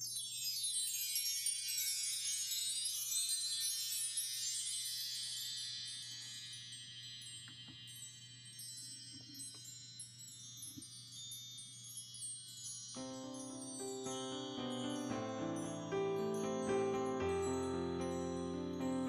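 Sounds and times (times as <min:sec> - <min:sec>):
wind chimes tinkling: 0:00.0 - 0:19.0
low sustained musical notes: 0:13.0 - 0:19.0.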